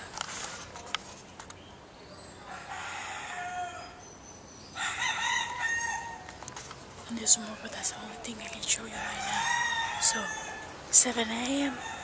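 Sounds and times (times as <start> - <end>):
rooster crowing: 2.4 - 4.0, 4.8 - 6.3, 8.9 - 10.7, 11.7 - 12.0.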